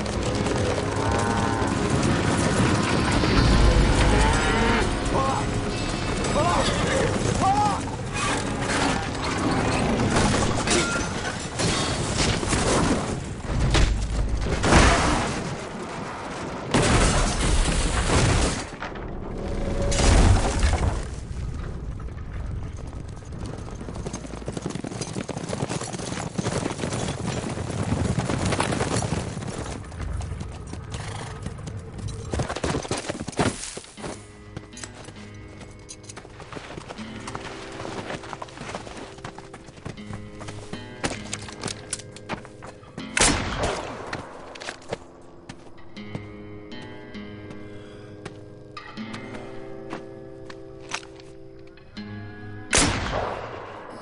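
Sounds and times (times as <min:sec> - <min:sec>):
film music: 0:00.0 - 0:11.6, 0:34.0 - 0:54.0.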